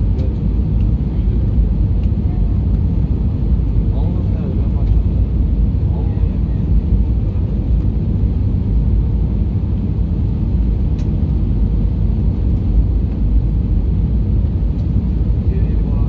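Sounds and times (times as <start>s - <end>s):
airplane cabin rumble: 0.0s - 16.0s.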